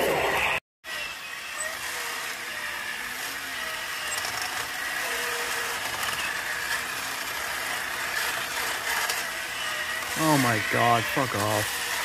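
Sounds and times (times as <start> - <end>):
toy robot motor whirring: 0.9 - 12.0.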